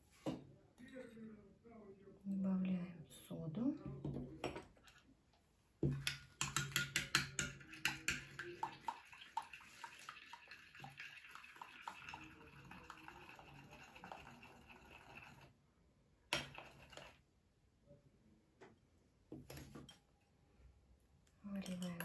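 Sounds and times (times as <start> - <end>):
spoon stirring in bowl: 5.8 - 15.5, 16.3 - 17.2, 21.5 - 22.0.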